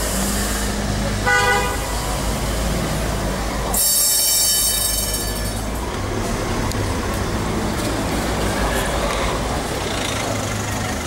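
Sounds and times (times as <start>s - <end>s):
tram wheels squealing on rails: 0.0s - 6.5s
cars idling: 0.0s - 11.0s
tram rumbling: 0.0s - 11.0s.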